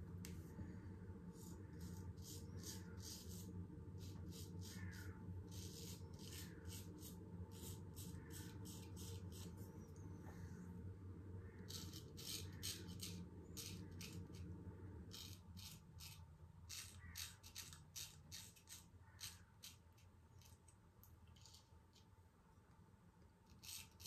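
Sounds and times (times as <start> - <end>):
razor scraping stubble: 1.8 - 9.6, 11.7 - 14.5, 15.1 - 20.6, 23.5 - 24.0.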